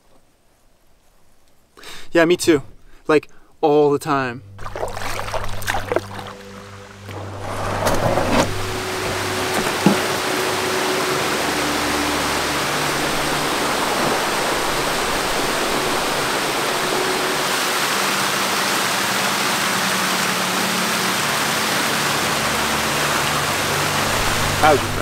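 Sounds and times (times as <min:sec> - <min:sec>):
waterfall rushing over rocks: 0:08.4 - 0:25.0.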